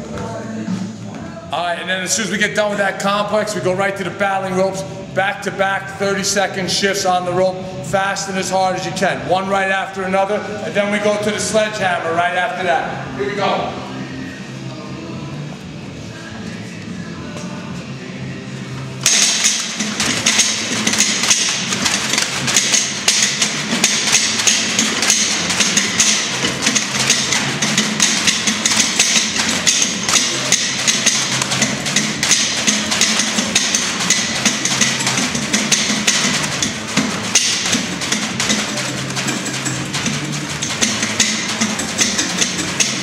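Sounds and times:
battle ropes slapping floor: 0:19.0 - 0:43.0.

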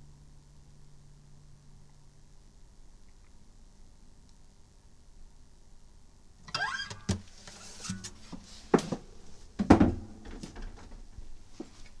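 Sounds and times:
short rising squeak: 0:06.5 - 0:07.2.

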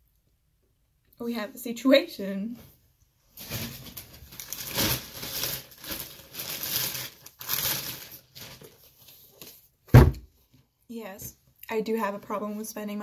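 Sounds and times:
plastic bag crinkling: 0:03.4 - 0:09.5.

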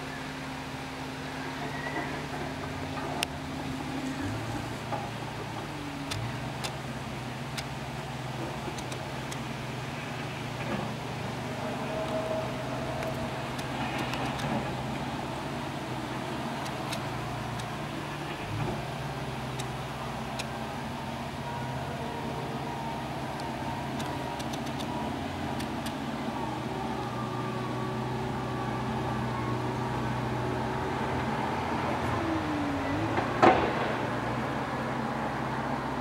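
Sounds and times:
rain shower hiss: 0:00.0 - 0:29.4
low steady hum: 0:00.0 - 0:36.0
rain drops ticking: 0:03.2 - 0:27.1.

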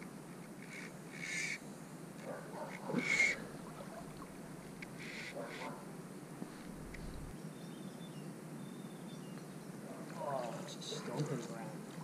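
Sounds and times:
shallow stream washing: 0:03.0 - 0:05.1.

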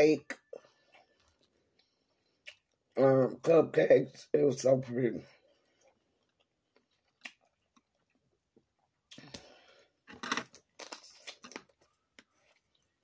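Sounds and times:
close-up chewing: 0:00.6 - 0:03.0, 0:05.5 - 0:09.4, 0:10.0 - 0:13.0.

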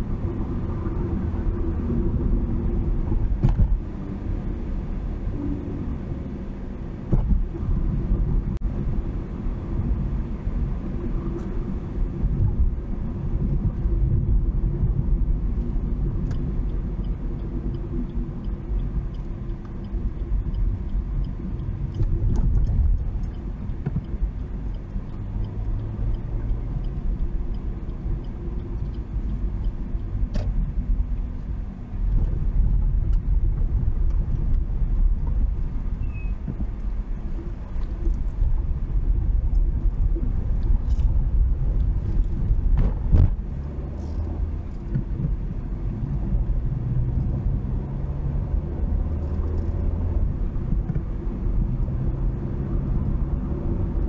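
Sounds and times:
vehicle driving on highway: 0:00.0 - 0:54.0.

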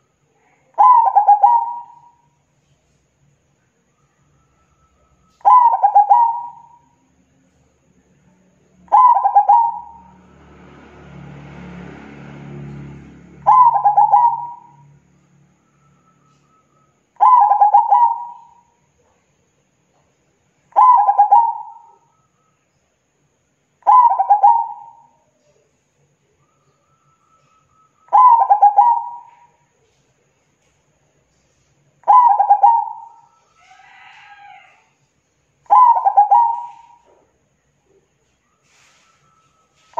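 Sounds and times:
dove cooing: 0:00.8 - 0:02.2, 0:05.3 - 0:06.8, 0:08.9 - 0:10.1, 0:13.4 - 0:14.8, 0:17.2 - 0:18.7, 0:20.7 - 0:22.1, 0:23.8 - 0:25.6, 0:27.5 - 0:30.0, 0:32.0 - 0:34.4, 0:35.7 - 0:37.2
faint rushing noise: 0:01.6 - 0:17.2, 0:32.8 - 0:39.9.

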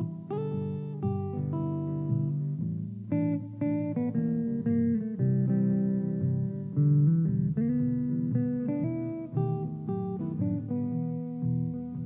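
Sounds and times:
electric guitar blues lead: 0:00.0 - 0:12.0
looped guitar backing part: 0:00.0 - 0:12.0.

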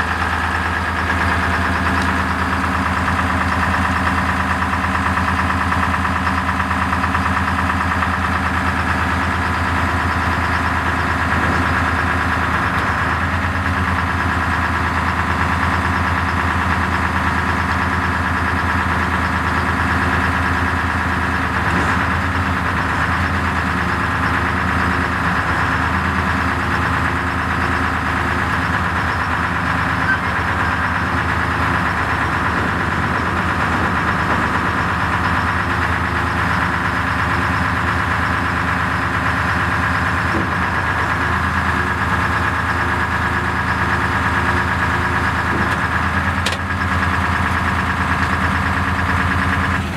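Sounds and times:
truck engine running steadily: 0:00.0 - 0:49.9.

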